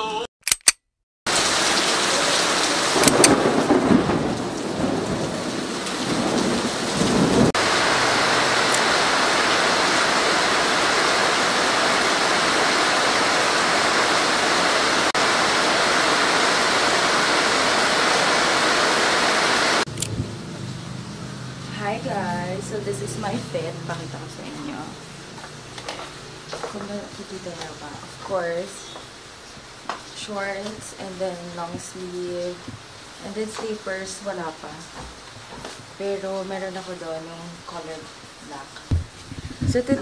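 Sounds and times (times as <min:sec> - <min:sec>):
steady rain: 0:01.3 - 0:40.0
low rumble of thunder: 0:03.0 - 0:08.0.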